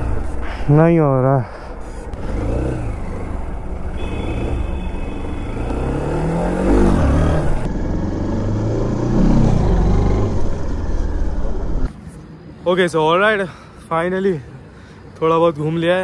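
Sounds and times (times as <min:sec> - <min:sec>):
motorcycle engine revving: 0:01.9 - 0:11.9.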